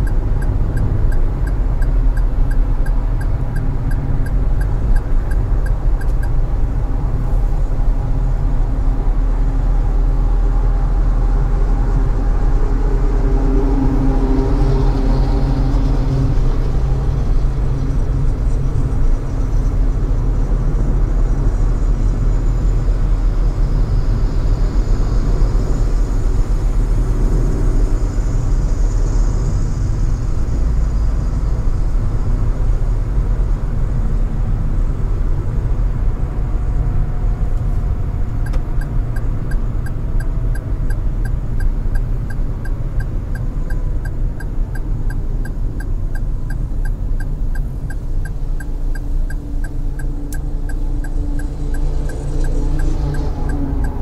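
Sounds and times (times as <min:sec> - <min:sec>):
turn signal ticking: 0:00.0 - 0:08.2, 0:37.6 - 0:54.0
car driving rumble: 0:00.0 - 0:54.0.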